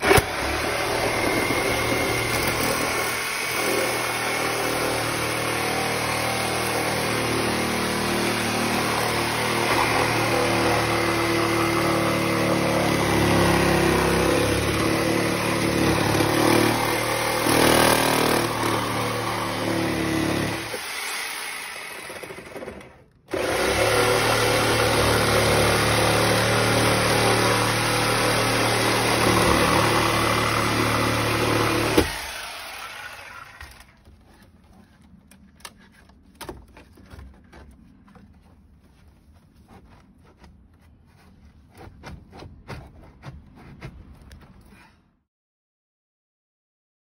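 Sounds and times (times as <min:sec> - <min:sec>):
electric power saw cutting wood: 0:00.0 - 0:34.1.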